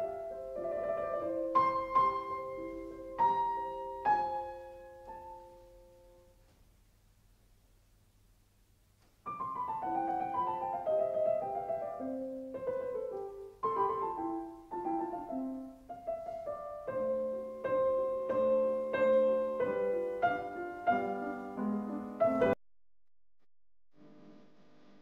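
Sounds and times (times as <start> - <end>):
solo piano melody: 0.0 - 6.4, 9.2 - 22.6.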